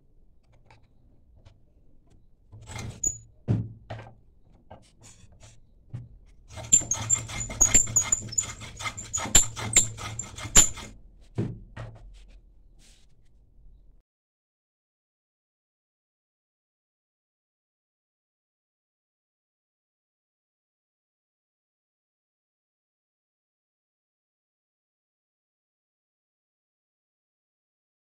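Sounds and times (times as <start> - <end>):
hand file scraping wood: 6.5 - 11.0.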